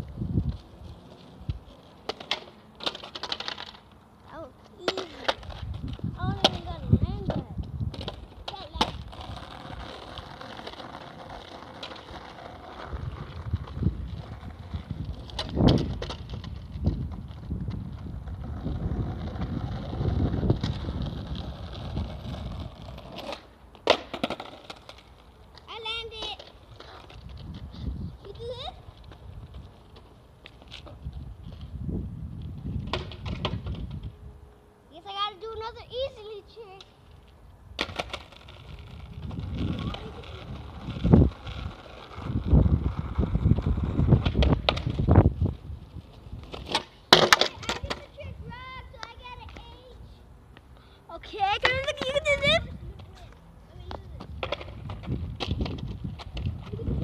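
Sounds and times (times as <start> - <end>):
wind buffeting microphone: 0.0 - 1.7, 4.9 - 23.2, 26.7 - 29.9, 30.8 - 34.4, 37.6 - 46.7, 47.5 - 50.2, 51.2 - 57.0
skateboard clacking on road: 0.0 - 34.2, 35.1 - 57.0
skateboard wheels rolling on asphalt: 0.0 - 57.0.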